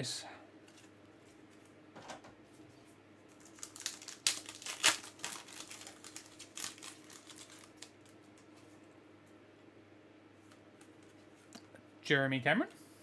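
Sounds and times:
foil wrapper crinkling: 3.3 - 8.5.

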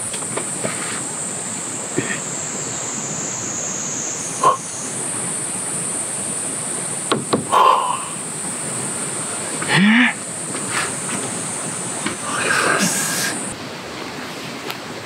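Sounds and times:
insects buzzing: 0.0 - 13.7
short knocks: 7.1 - 7.6.

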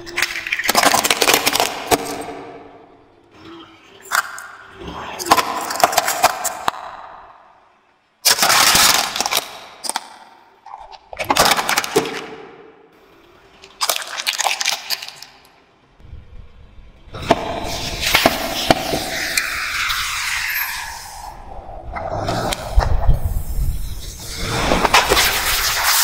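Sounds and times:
plastic toys crunching under tyre: 0.0 - 2.2, 8.2 - 10.2, 13.8 - 15.4
low rumble: 16.0 - 18.5.

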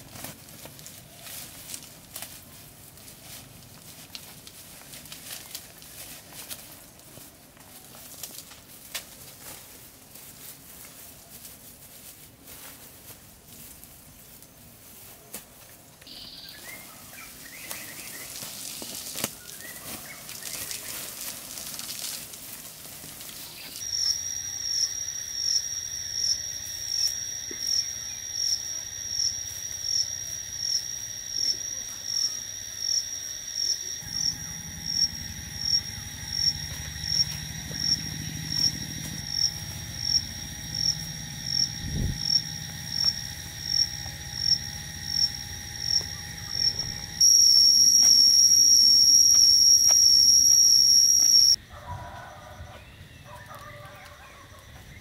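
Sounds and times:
loud continuous insect drone: 15.9 - 55.0
insects pulsing shrill tone: 16.1 - 22.2, 23.2 - 51.6.

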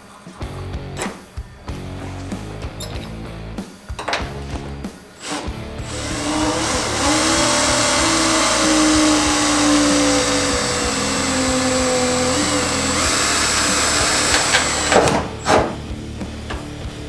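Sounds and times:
cordless drill motor whine: 5.2 - 15.0
drill bit cutting metal: 5.2 - 15.1.

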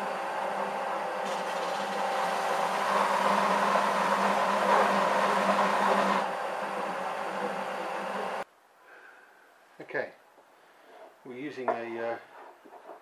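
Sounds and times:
belt sander sanding plastic: 1.2 - 6.2.

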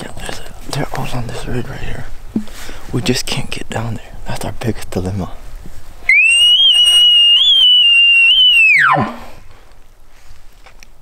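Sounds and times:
elk bugle call imitation: 6.1 - 9.3.

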